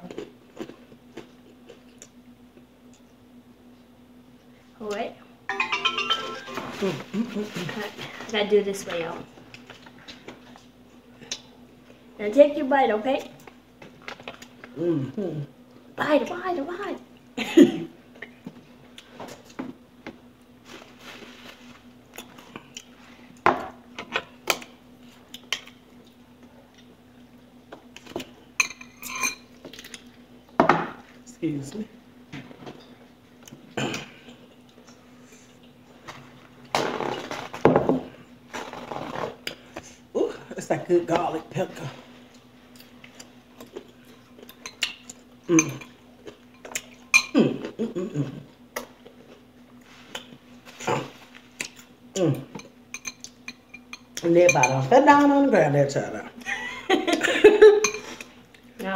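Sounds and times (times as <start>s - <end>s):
faint steady hum: 0.0s - 58.9s
utensils clinking on dishes: 5.5s - 7.2s, 28.6s - 29.5s, 52.6s - 54.9s, 57.8s - 58.3s.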